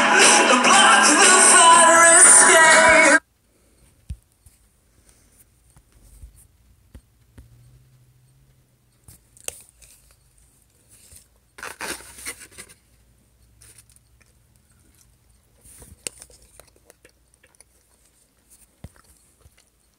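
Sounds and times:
rustling: 0:09.1 - 0:13.0.

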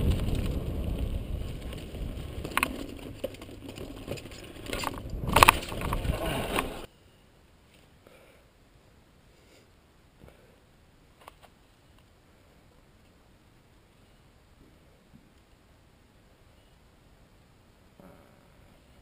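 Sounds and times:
bike rattling and clicking: 0:00.0 - 0:06.9
wind rumble on microphone: 0:00.0 - 0:06.9.

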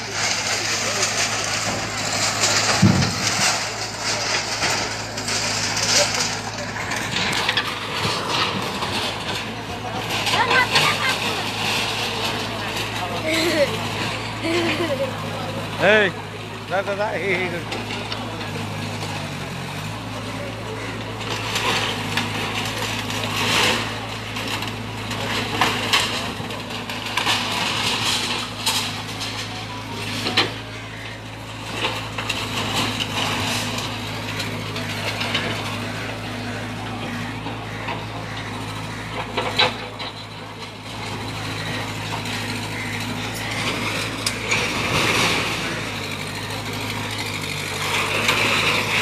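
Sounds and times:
falling brick and rubble crashing: 0:00.0 - 0:16.0, 0:21.0 - 0:36.8
excavator engine running: 0:00.0 - 0:49.0.

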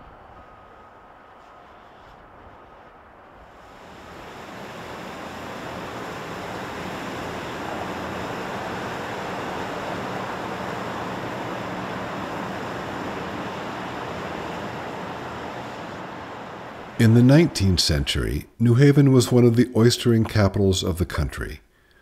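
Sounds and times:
faint low hum: 0:00.0 - 0:22.0
water rushing: 0:03.6 - 0:18.1.

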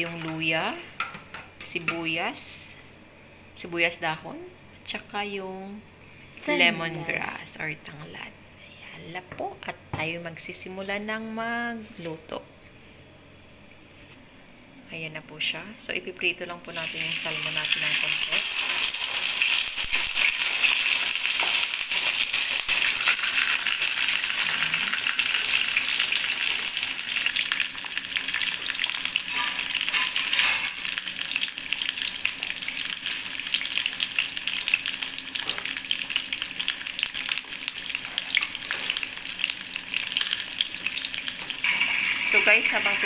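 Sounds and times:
fish sizzling in hot oil: 0:16.7 - 0:43.0.

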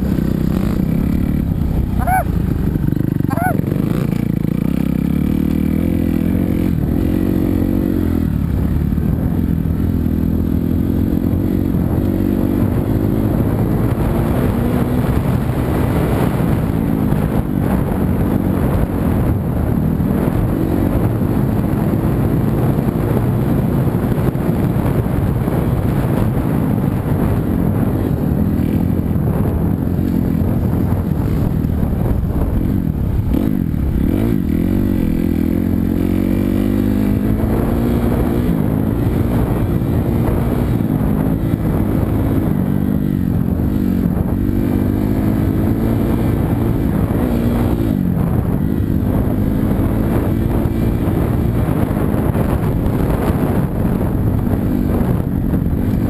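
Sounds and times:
motocross bike engine revving: 0:00.0 - 0:08.8, 0:33.2 - 0:53.6.

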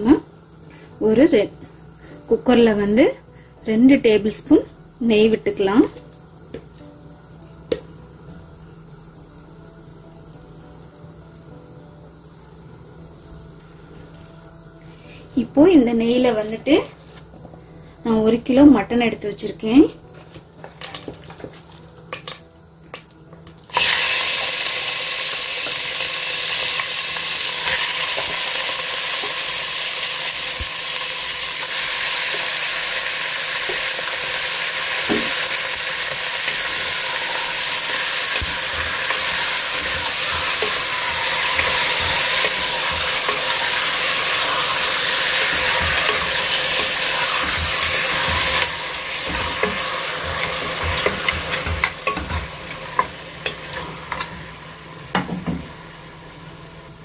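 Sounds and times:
meat sizzling in hot fat: 0:00.0 - 0:57.0
wooden spatula stirring meat: 0:37.8 - 0:54.2.

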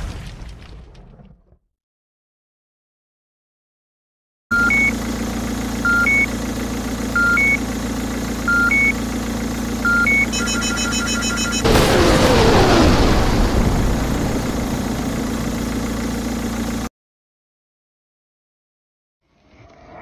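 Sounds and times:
fast high beeps: 0:04.5 - 0:04.9, 0:05.9 - 0:06.3, 0:07.2 - 0:07.6, 0:08.5 - 0:09.0, 0:09.8 - 0:11.7
two-tone electronic beep: 0:04.5 - 0:05.0, 0:05.8 - 0:06.3, 0:07.2 - 0:07.6, 0:08.5 - 0:09.0, 0:09.8 - 0:11.7
heavy vehicle engine idling: 0:04.5 - 0:12.0, 0:13.6 - 0:16.9
rushing blast with falling tone: 0:11.6 - 0:16.7.

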